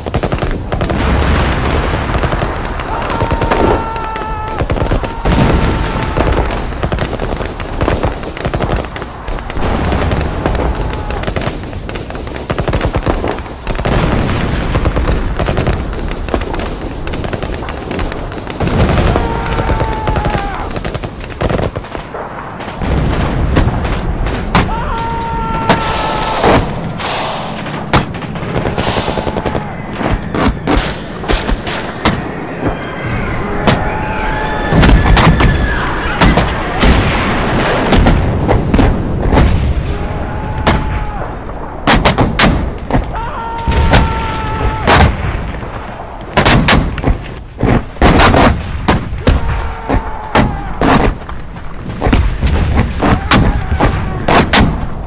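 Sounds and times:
rifle and machine-gun fire: 0.0 - 32.3
explosions booming: 0.0 - 55.0.

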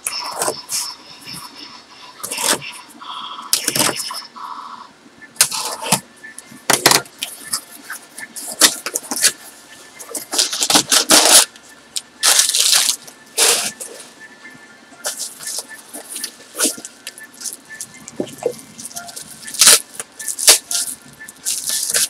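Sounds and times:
packing material rustling: 12.2 - 13.9, 18.4 - 22.0.

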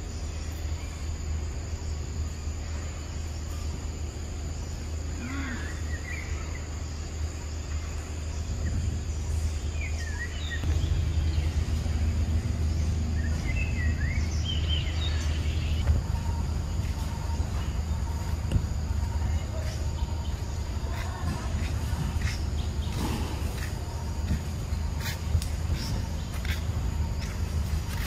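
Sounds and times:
faint high whine: 0.0 - 28.0
low rumble: 7.8 - 28.0.

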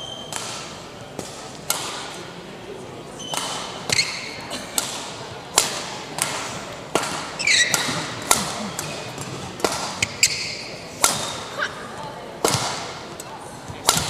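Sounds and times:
rackets hitting shuttlecock: 0.1 - 2.4, 3.1 - 11.6, 12.4 - 14.0
shoes squeaking on court: 3.2 - 4.4, 7.3 - 8.0, 10.0 - 10.8.

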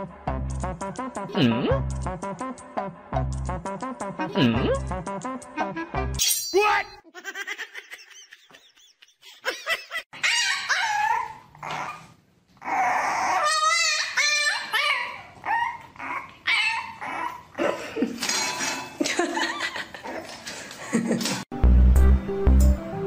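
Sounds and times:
puppy whining and yelping: 10.2 - 17.6.

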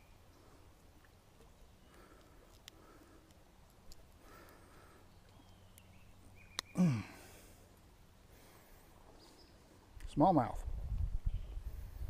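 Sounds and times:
man grunting: 6.8 - 7.2.

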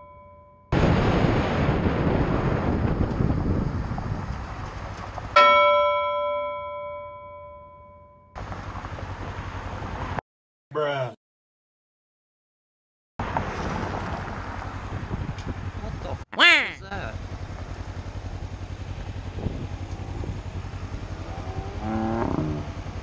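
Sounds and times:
bell-like ding: 0.0 - 0.7, 5.4 - 8.3
wind noise: 1.0 - 5.0, 14.8 - 15.7, 19.4 - 20.5
short warbling blip: 16.4 - 16.8
motorcycle engine: 16.9 - 23.0.

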